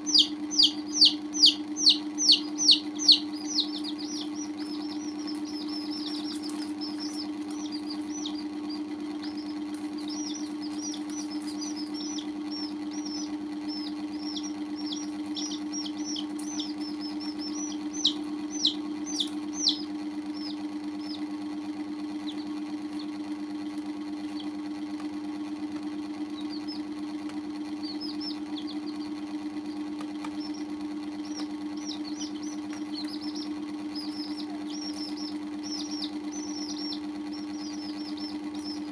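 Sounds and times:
baby chicks peeping: 0.0 - 38.9
low hum: 0.0 - 38.9.

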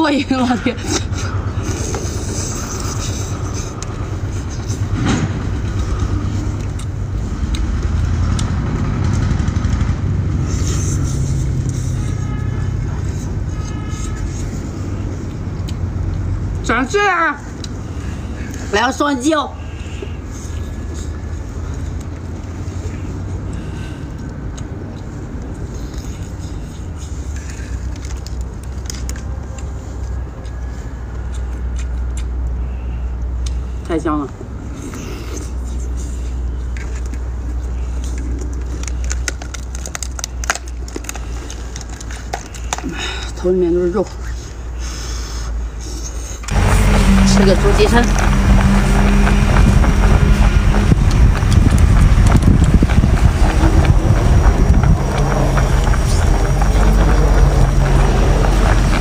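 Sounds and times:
biting and sucking clicks: 0.9 - 9.4, 19.9 - 33.6, 34.7 - 43.0
lobster shell cracking: 38.4 - 42.8
steady low rumble: 45.6 - 59.0.

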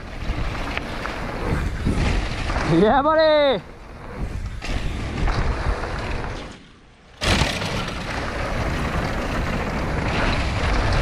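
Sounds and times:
wind rushing over microphone: 0.0 - 6.5
tyres rolling on dirt trail: 0.0 - 11.0.

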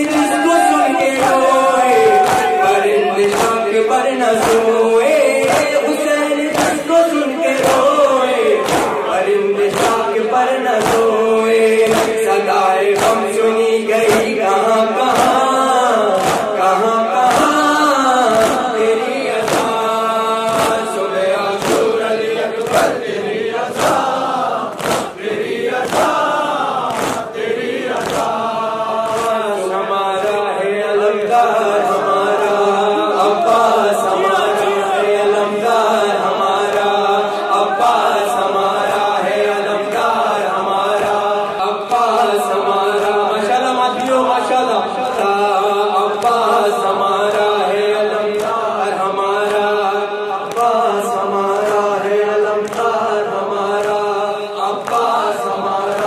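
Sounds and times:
crowd chanting: 0.0 - 56.0
man singing a lament into a microphone: 0.0 - 56.0
chest slapping in unison: 1.0 - 3.8, 4.4 - 4.7, 5.4 - 5.8, 6.5 - 6.9, 7.5 - 10.2, 10.8 - 11.2, 11.8 - 12.3, 12.9 - 13.3, 15.1 - 15.4, 16.1 - 17.6, 18.3 - 18.7, 19.4 - 21.0, 21.6 - 29.5, 52.6 - 53.0.

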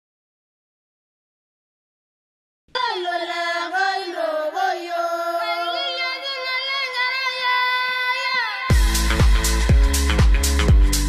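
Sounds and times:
high voice singing unaccompanied: 2.7 - 9.7.

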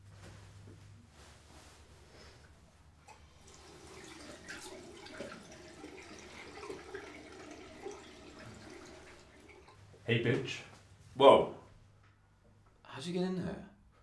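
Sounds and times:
tap water running into sink: 3.1 - 10.0.

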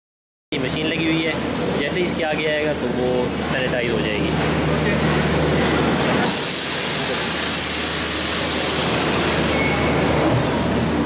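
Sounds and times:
cable car machinery humming: 4.0 - 11.0
loud hiss: 6.2 - 11.0.

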